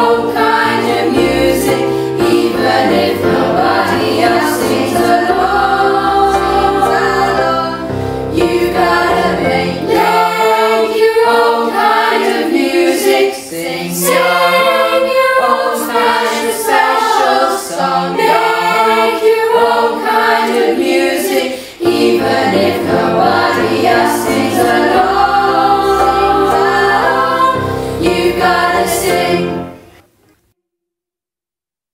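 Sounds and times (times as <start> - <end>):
children's choir singing: 0.0 - 30.0.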